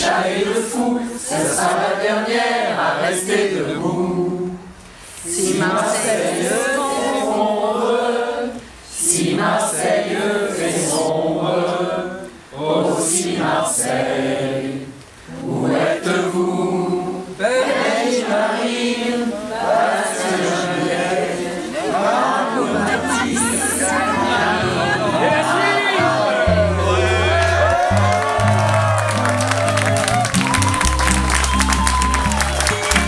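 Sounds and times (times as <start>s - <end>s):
choir singing unaccompanied: 0.0s - 28.6s.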